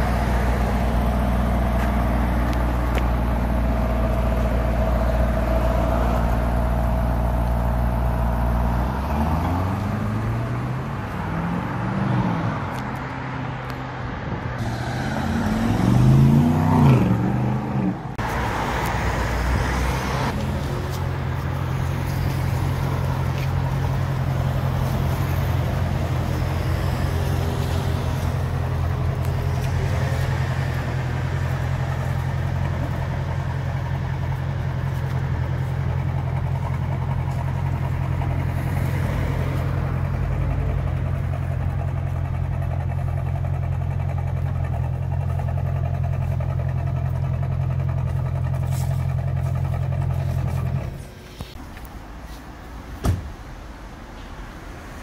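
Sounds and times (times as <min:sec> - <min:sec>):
car engine idling: 0:00.0 - 0:11.2, 0:17.9 - 0:52.1
car revving while driving past: 0:08.5 - 0:13.4, 0:14.6 - 0:20.4.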